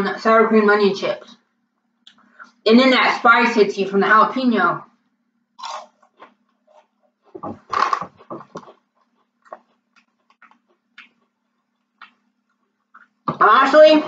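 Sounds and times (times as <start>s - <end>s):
potato chips being chewed: 5.6s - 13.2s.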